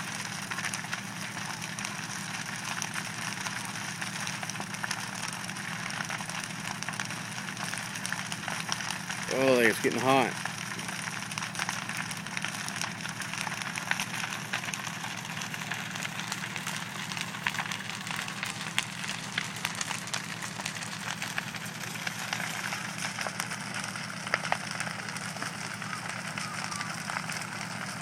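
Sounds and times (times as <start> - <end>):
fire popping and snapping: 0.0 - 28.0
fire rushing noise: 0.0 - 28.0
house fire crackling: 0.0 - 28.0.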